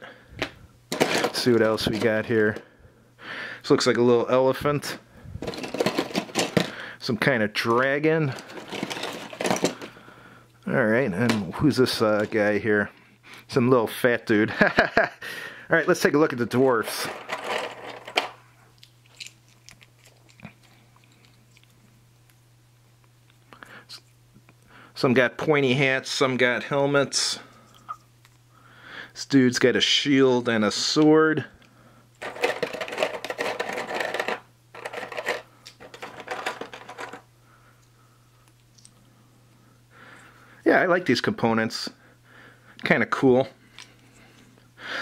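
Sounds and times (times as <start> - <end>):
plastic miniatures clattering: 0.9 - 2.6, 5.4 - 6.8, 7.7 - 9.9, 16.9 - 18.4, 32.2 - 37.2.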